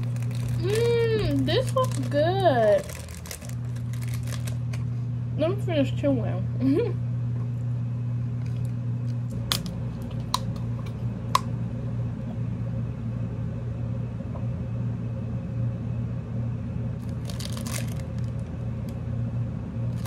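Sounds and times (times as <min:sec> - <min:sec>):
plastic wrapper crinkling: 0:00.0 - 0:04.9, 0:08.4 - 0:10.9, 0:17.0 - 0:18.5
low room hum: 0:00.0 - 0:20.0.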